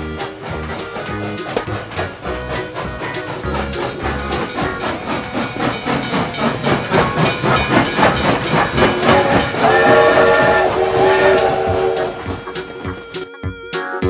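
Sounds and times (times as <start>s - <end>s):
electronic train chugging: 0.0s - 13.9s
electronic steam whistle: 8.0s - 13.7s.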